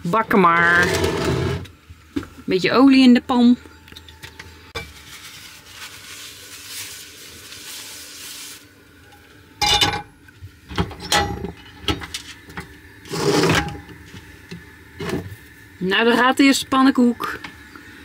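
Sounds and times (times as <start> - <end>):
paper towel rubbing a pan: 4.8 - 8.7.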